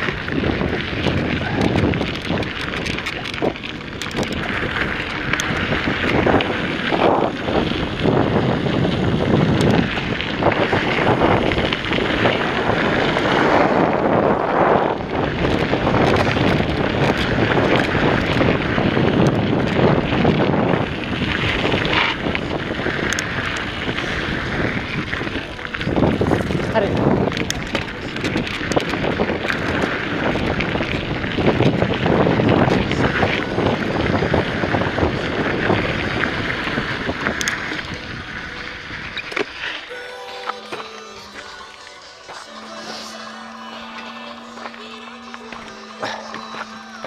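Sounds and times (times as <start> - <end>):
wind buffeting microphone: 0.0 - 39.9
bike rattles and clicks: 0.0 - 47.0
bike tyres rolling on dirt: 0.0 - 47.0.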